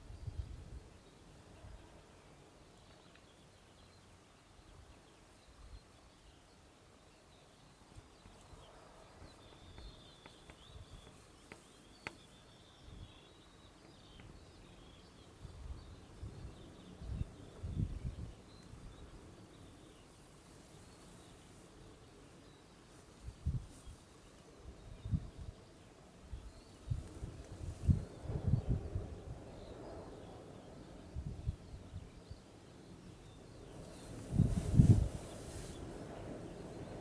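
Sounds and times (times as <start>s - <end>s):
low rumbling wind gusts: 0.0s - 2.6s, 14.1s - 19.9s, 23.2s - 37.0s
distant birdsong: 0.0s - 37.0s.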